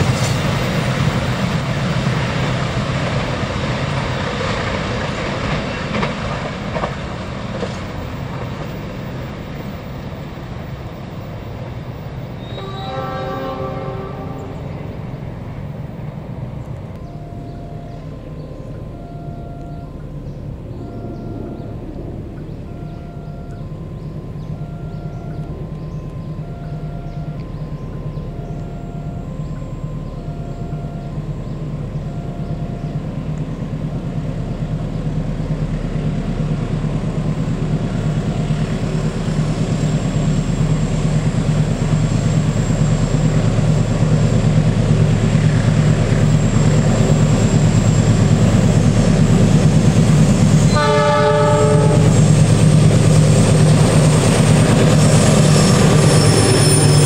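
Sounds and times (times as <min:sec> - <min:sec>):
locomotive engine drone: 0:00.0 - 0:57.0
train horn blast: 0:12.4 - 0:14.9, 0:50.6 - 0:52.8
faint two-tone beeping: 0:17.0 - 0:20.1, 0:22.6 - 0:33.0.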